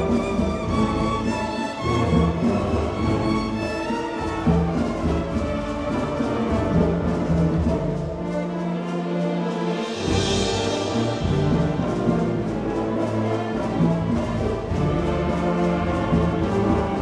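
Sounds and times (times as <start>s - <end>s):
congas and timpani beat: 0.0s - 17.0s
orchestra strings: 0.0s - 17.0s.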